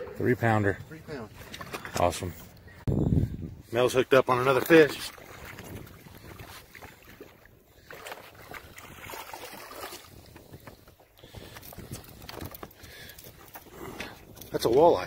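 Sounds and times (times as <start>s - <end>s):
wind on microphone: 2.7s - 3.8s, 5.1s - 14.6s
waves lapping against boat: 3.7s - 15.0s.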